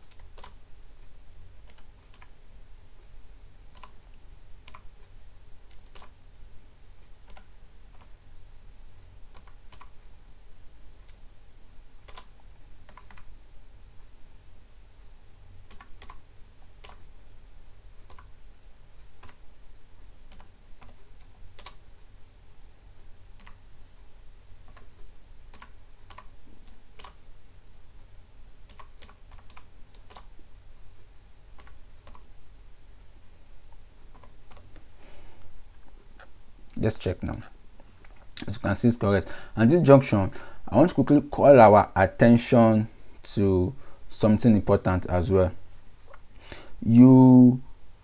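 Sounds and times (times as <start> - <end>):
typing on computer keyboard: 0.0 - 0.6, 3.7 - 4.0, 5.7 - 6.2, 7.2 - 8.1, 9.3 - 10.0, 12.0 - 13.3, 15.7 - 16.2, 16.8 - 17.0, 18.0 - 18.3, 20.3 - 21.8, 23.4 - 23.6, 24.6 - 27.2, 28.6 - 30.3
steady low hum: 0.0 - 48.0.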